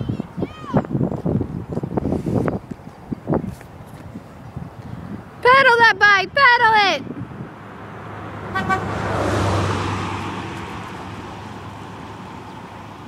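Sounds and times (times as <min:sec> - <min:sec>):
car driving past: 0:07.4 - 0:13.0
car horn toot: 0:08.5 - 0:09.0.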